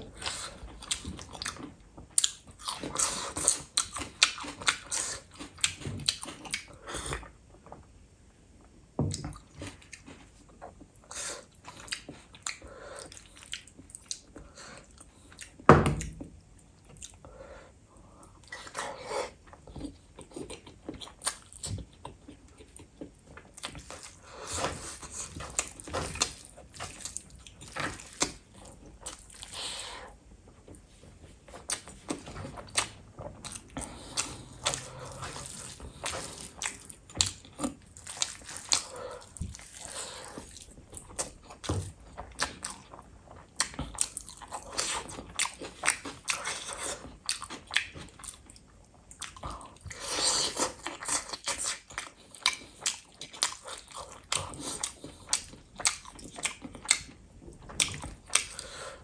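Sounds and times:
wet chewing: 19.4s - 30.0s, 31.5s - 59.0s.

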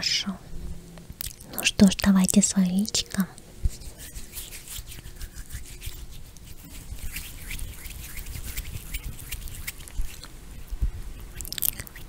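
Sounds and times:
creamy hands rubbing and squishing: 3.6s - 12.0s.

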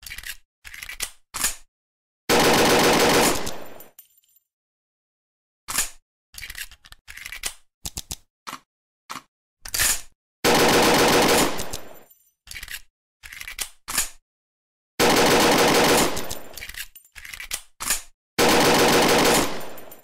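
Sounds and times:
machine-gun fire bursts: 2.3s - 3.8s, 10.4s - 12.0s, 15.0s - 16.6s, 18.4s - 20.0s.

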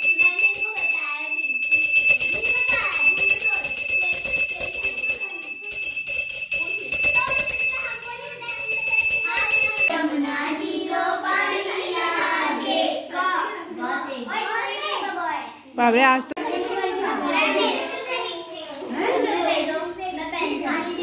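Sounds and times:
bell ringing rapidly: 0.0s - 9.9s
children chattering: 0.0s - 21.0s.

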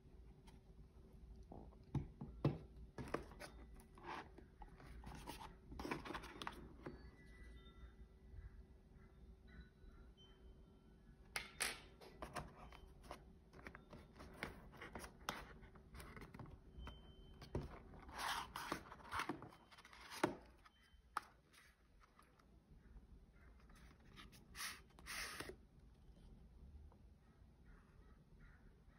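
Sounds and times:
cardboard scraping and rubbing: 24.0s - 25.5s.

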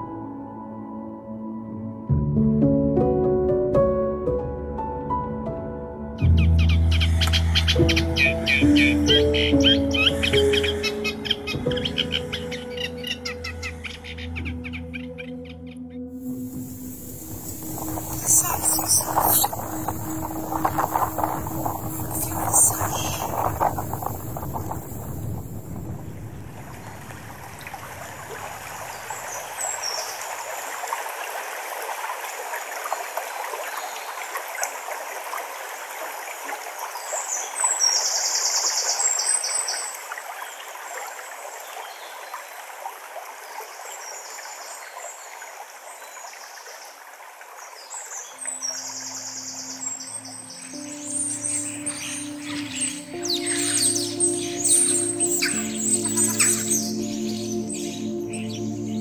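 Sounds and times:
songbirds chirping: 6.2s - 30.6s, 47.6s - 59.0s
stream babbling: 16.2s - 59.0s
bird rattling trill: 16.9s - 24.8s.

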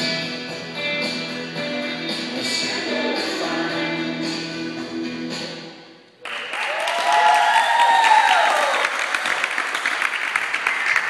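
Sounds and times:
music: 0.0s - 6.0s
audience applause: 6.2s - 11.0s
person whooping: 6.6s - 8.9s.

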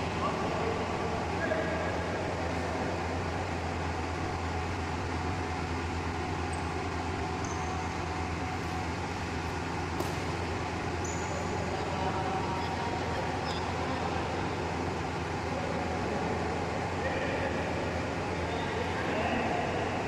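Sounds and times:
sports hall hum and hiss: 0.0s - 20.0s
shoes squeaking on floor: 7.4s - 8.1s, 11.0s - 11.6s.

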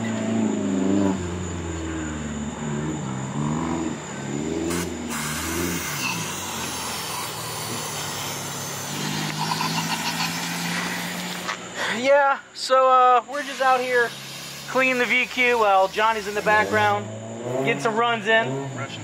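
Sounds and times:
car engine revving: 0.0s - 11.8s, 15.9s - 19.0s.

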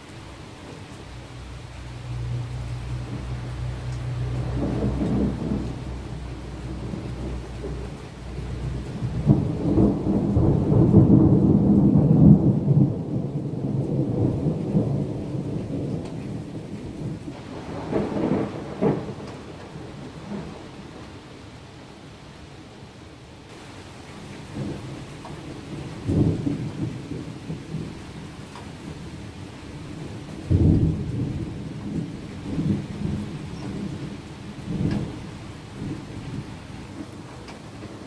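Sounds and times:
thunder rumbling: 2.0s - 21.3s, 23.5s - 38.0s.

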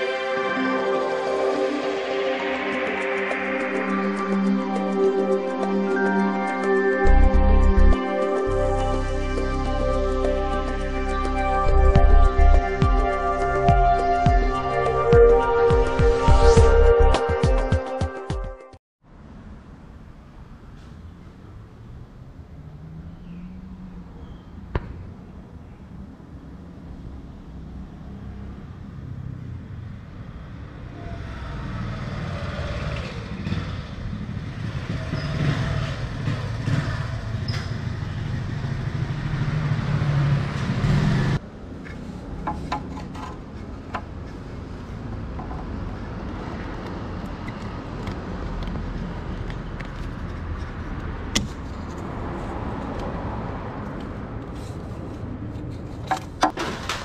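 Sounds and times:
vehicle engine rumbling: 20.4s - 57.0s.

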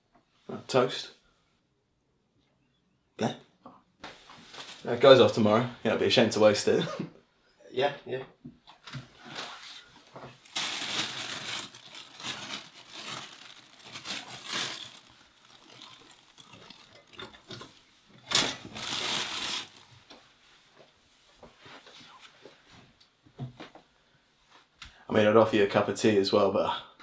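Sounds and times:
plastic bag crinkling: 10.3s - 20.2s.

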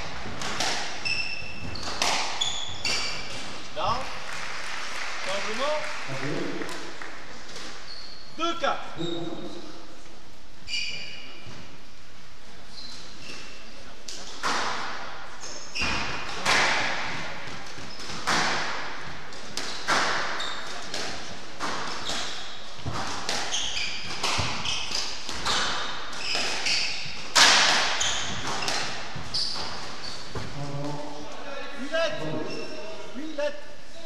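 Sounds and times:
shoes squeaking on wooden floor: 0.0s - 4.0s, 7.4s - 9.8s, 10.6s - 11.8s, 12.6s - 13.8s, 15.4s - 16.4s, 19.1s - 21.0s, 21.6s - 31.2s, 32.0s - 33.1s
squash ball hitting rackets and walls: 0.0s - 4.0s, 13.2s - 30.6s.

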